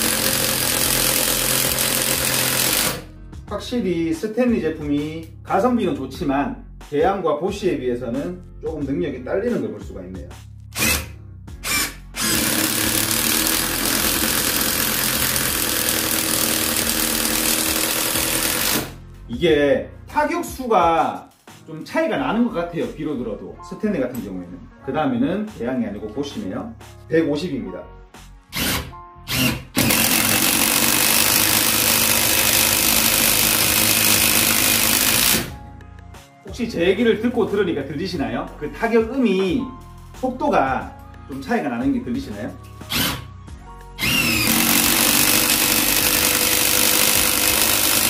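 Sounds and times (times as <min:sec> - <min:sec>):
impact driver hammering: 0:00.0 - 0:03.0, 0:10.8 - 0:19.0, 0:28.6 - 0:35.6, 0:44.0 - 0:48.0.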